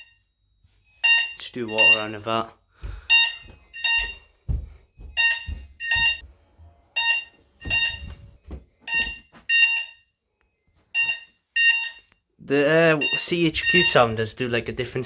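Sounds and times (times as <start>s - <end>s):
fire alarm beeps in pairs: 0.0s - 2.3s, 3.1s - 4.3s, 5.0s - 6.2s, 7.0s - 10.1s, 10.9s - 12.3s, 12.9s - 14.1s.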